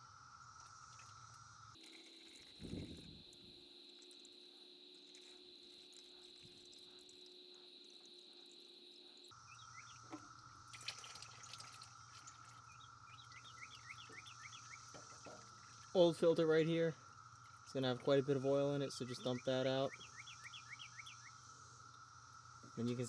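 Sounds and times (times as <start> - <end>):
cicadas droning: 0.0 - 23.0
oil dripping into pan: 10.0 - 15.9.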